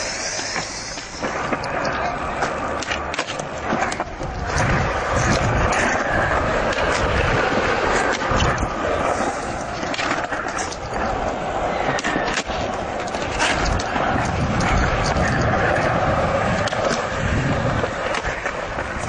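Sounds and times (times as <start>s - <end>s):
skateboard clacks: 0.0s - 19.0s
skateboard wheels rolling: 0.0s - 19.0s.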